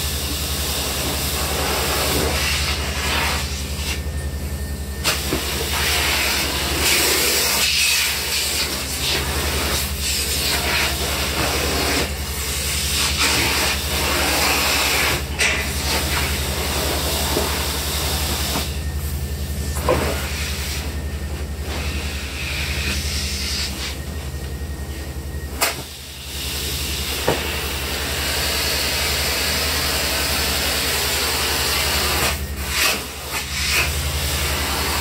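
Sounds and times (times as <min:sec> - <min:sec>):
low machine drone: 0:00.0 - 0:35.0
vacuum hose rushing hiss: 0:05.0 - 0:21.0, 0:25.6 - 0:35.0.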